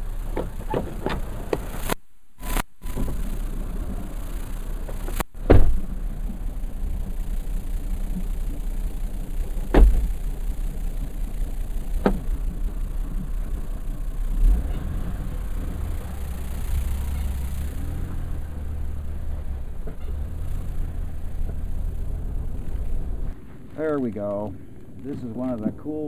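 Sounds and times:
minivan engine running: 0.0 - 26.0
sharp thumps: 4.2 - 6.4, 8.1 - 18.4.

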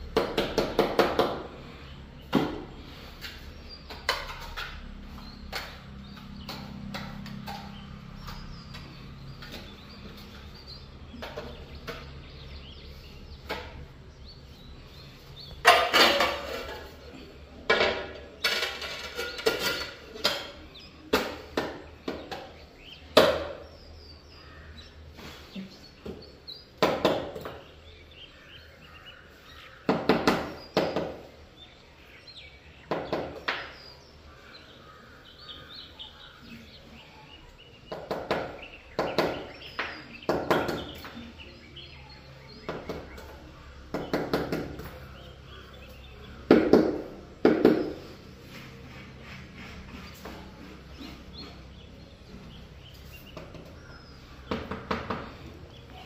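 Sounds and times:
sharp knocks and clatter: 0.1 - 1.6, 3.3 - 12.7, 13.3 - 14.0, 15.4 - 23.7, 32.8 - 33.9, 37.9 - 41.3, 52.9 - 55.5.

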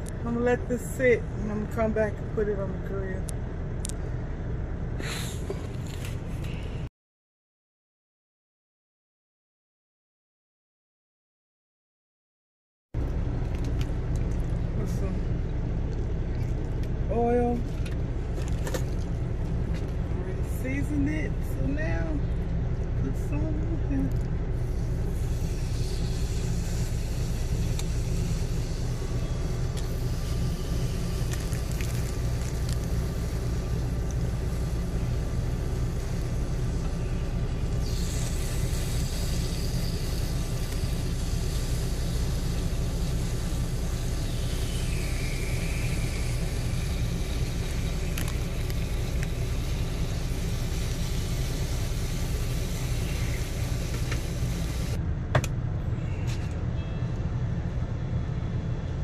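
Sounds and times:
diesel engine idling: 13.0 - 59.0.

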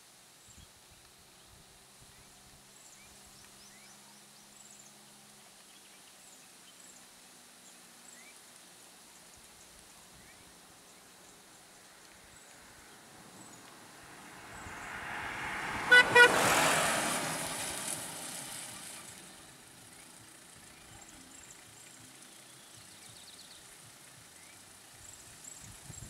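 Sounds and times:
vehicle driving past: 12.4 - 22.5
car horn toots: 14.8 - 17.0.

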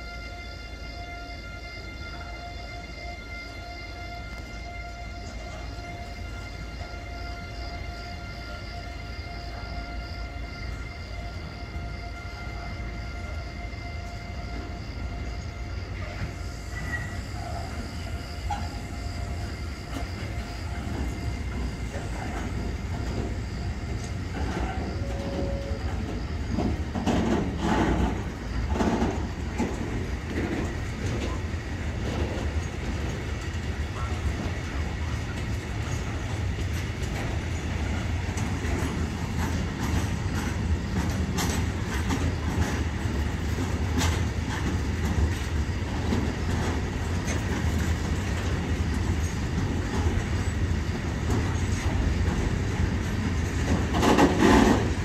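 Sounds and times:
freight train rumbling: 0.0 - 55.0
loud train knocks: 4.2 - 55.0
wheels clattering over rail joints: 18.4 - 55.0.

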